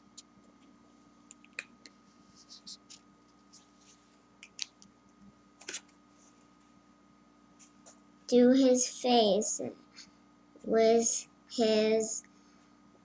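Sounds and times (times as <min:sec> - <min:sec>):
marker scratching on paper: 0:02.3 - 0:03.7.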